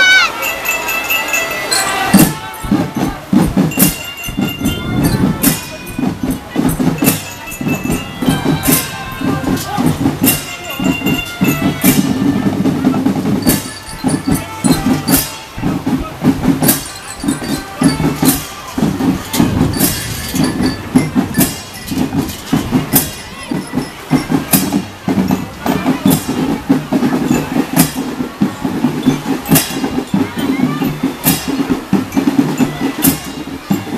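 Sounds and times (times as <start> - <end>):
marching keyboard instruments: 0.0 - 33.9
snare and tenor drums: 0.0 - 33.9
cymbal crash: 17.5 - 23.2.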